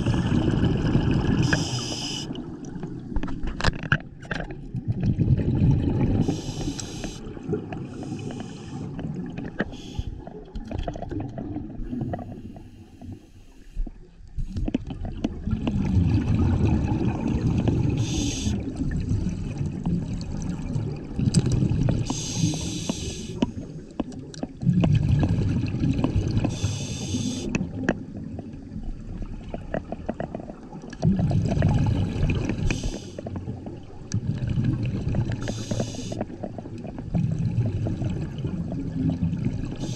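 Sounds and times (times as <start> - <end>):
exhaled bubbles rumbling: 0.0 - 13.2, 13.8 - 39.9
regulator hiss on inhale: 1.4 - 2.4, 6.2 - 7.3, 7.9 - 8.9, 9.7 - 10.2, 12.2 - 14.5, 18.0 - 18.6, 22.1 - 23.4, 26.5 - 27.6, 32.6 - 33.2, 35.4 - 36.3.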